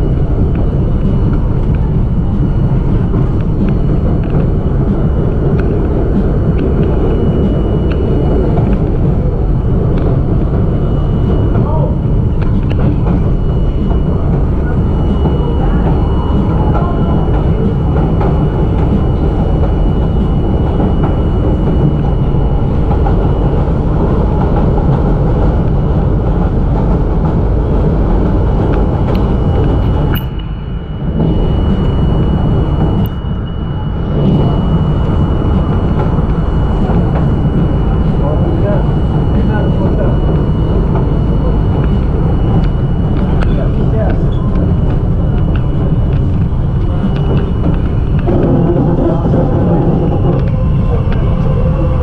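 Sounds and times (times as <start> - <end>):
train wheels rumbling on rail: 0.0 - 52.0
thin high tone: 28.4 - 52.0.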